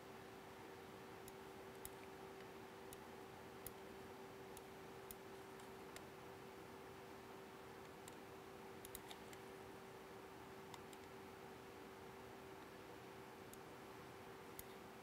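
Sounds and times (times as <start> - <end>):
faint steady hum: 0.0 - 15.0
faint small clicks: 7.8 - 8.2, 8.8 - 9.5, 10.7 - 11.2.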